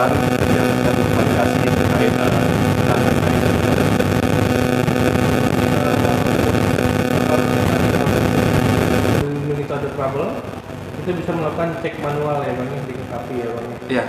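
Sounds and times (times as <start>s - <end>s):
loud droning hum: 0.0s - 14.0s.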